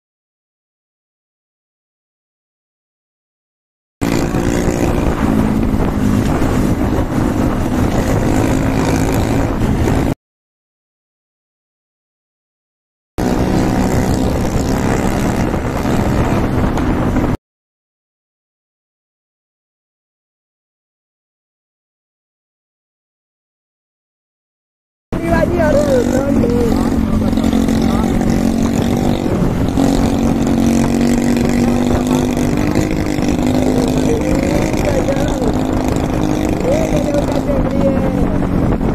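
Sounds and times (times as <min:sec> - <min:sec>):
motorcycle engine running: 0:04.0 - 0:10.2, 0:13.2 - 0:17.4, 0:25.2 - 0:38.9
wind rush: 0:04.0 - 0:10.2, 0:13.2 - 0:17.4, 0:25.2 - 0:38.9.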